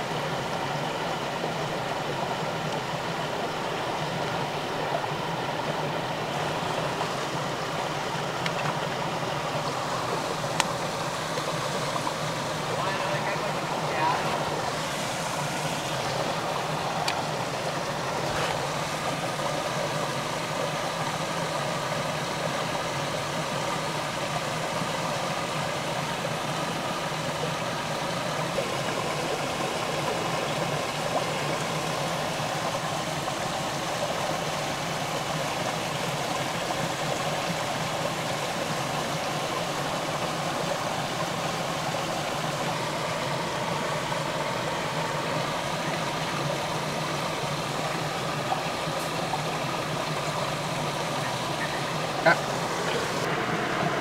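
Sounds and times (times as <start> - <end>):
stream rushing: 0.0 - 54.0.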